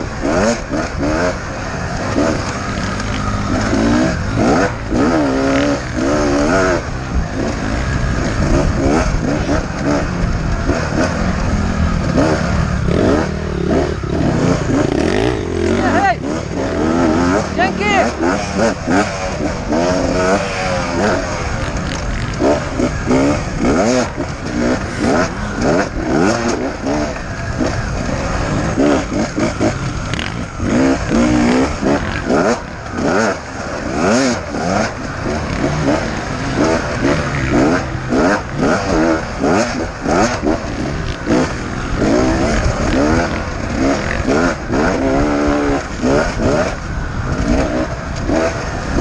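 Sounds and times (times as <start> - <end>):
motorcycle engine revving: 0.0 - 49.0.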